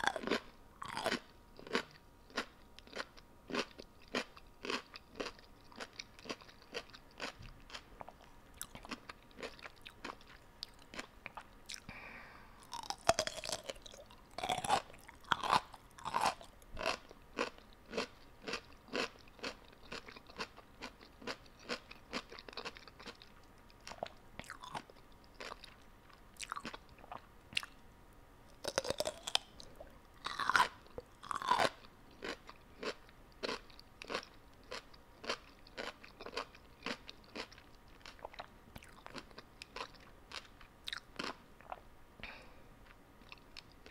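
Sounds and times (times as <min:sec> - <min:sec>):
person chewing crunchy food: 0:00.0 - 0:11.9, 0:12.6 - 0:27.8, 0:28.5 - 0:41.8.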